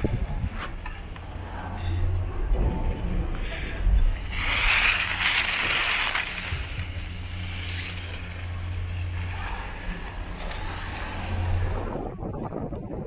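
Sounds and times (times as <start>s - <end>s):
wind rushing over microphone: 0.0s - 0.8s, 11.1s - 13.0s
skis sliding on packed snow: 4.1s - 12.0s.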